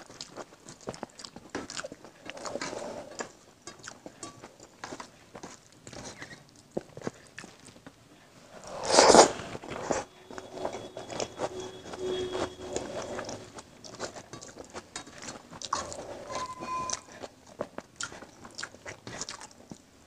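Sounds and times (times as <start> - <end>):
wet chewing: 0.0 - 7.9, 16.9 - 19.9.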